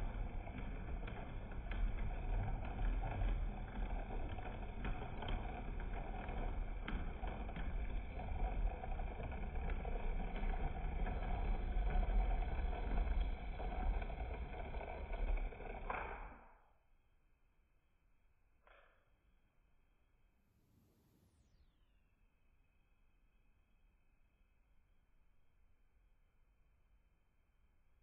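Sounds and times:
model train rumbling on track: 0:00.0 - 0:16.2.

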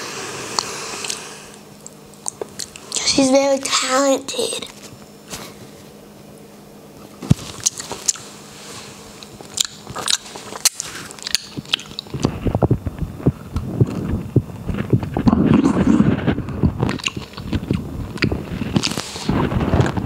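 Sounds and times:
biting and chewing: 0:01.8 - 0:03.0, 0:07.2 - 0:08.4, 0:09.2 - 0:20.0
wet mouth clicks eating grape: 0:09.5 - 0:12.3, 0:16.8 - 0:19.0.

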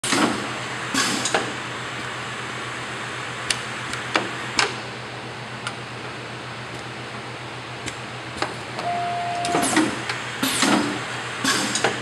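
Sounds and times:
machine humming: 0:08.8 - 0:10.2.

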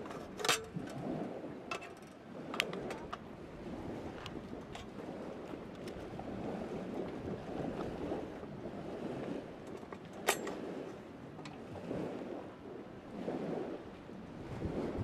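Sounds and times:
metal clicks from handling a lantern: 0:00.0 - 0:01.0, 0:01.7 - 0:03.2, 0:09.7 - 0:10.6.

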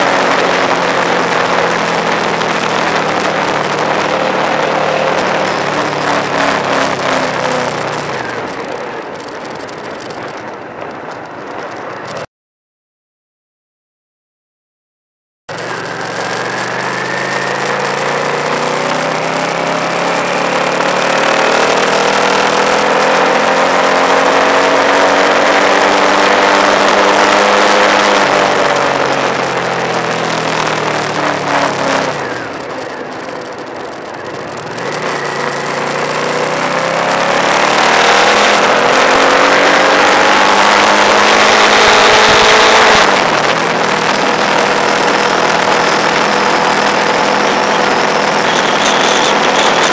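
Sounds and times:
motorcycle engine revving: 0:00.0 - 0:10.5, 0:15.5 - 0:49.9
wind rush on microphone: 0:00.0 - 0:12.3, 0:20.5 - 0:49.9.

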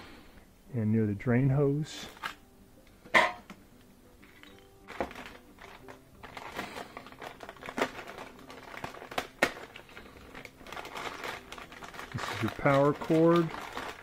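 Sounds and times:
plastic bag crinkling: 0:04.4 - 0:14.0.

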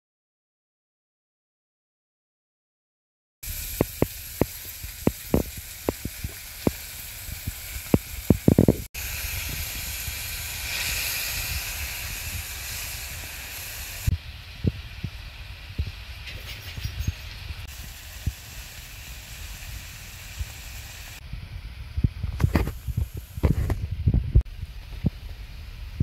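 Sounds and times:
oil sizzling in a frying pan: 0:03.4 - 0:21.2.

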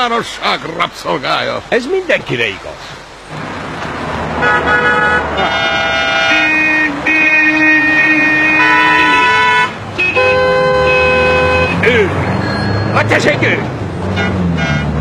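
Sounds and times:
traffic rumble: 0:00.0 - 0:15.0
car horns honking: 0:04.2 - 0:13.4, 0:14.0 - 0:15.0.

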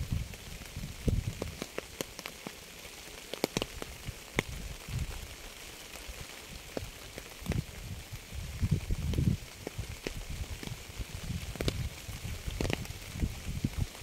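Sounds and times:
rain hissing: 0:00.0 - 0:14.0
raindrops ticking on hard surface: 0:00.0 - 0:14.0.

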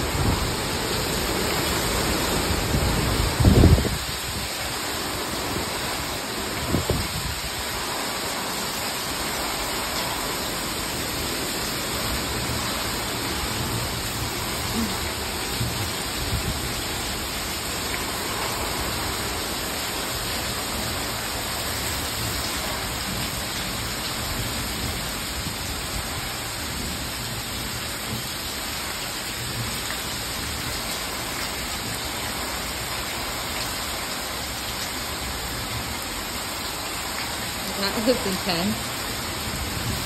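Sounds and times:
storm wind gusting: 0:00.0 - 0:05.9
heavy rain on paving: 0:00.0 - 0:40.0.

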